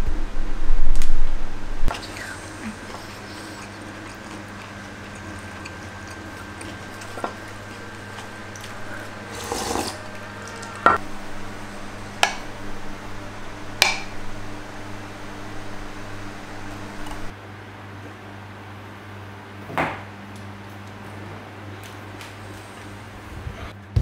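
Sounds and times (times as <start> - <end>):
steady low hum: 0.0 - 17.6
slurp of broth: 9.0 - 10.0.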